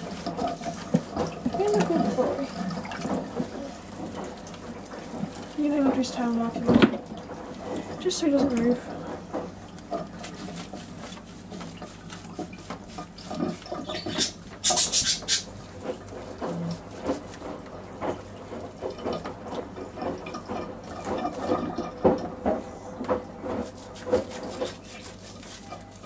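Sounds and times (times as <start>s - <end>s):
hands rubbing wet fur: 0.0s - 6.5s, 9.8s - 17.8s, 23.4s - 26.0s
water splashing and dripping: 0.0s - 26.0s.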